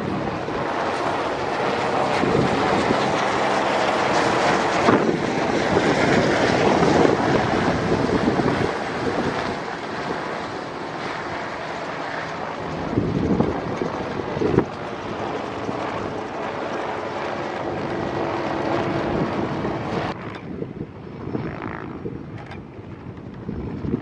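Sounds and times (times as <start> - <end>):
helicopter rotor chop: 0.0 - 24.0
wind noise on microphone: 0.0 - 24.0.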